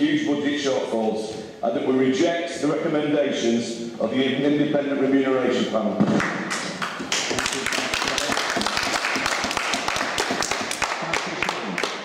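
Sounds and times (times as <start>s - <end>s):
people clapping: 6.2s - 12.0s.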